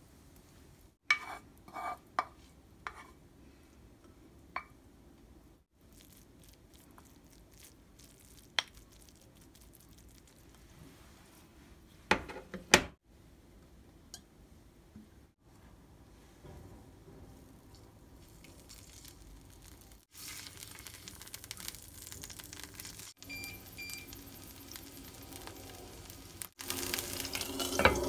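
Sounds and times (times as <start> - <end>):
spatula scraping frying pan: 1.1 - 3.2, 26.8 - 28.0.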